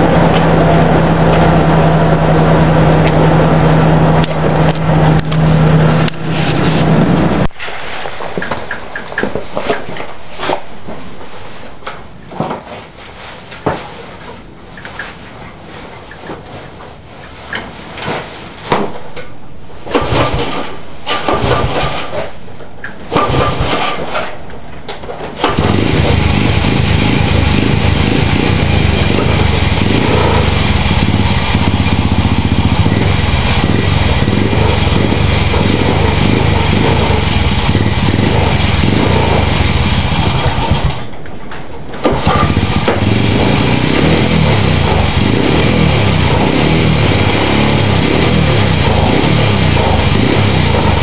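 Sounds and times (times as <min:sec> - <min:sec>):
small engine idling: 0:25.4 - 0:41.1, 0:42.1 - 0:51.0.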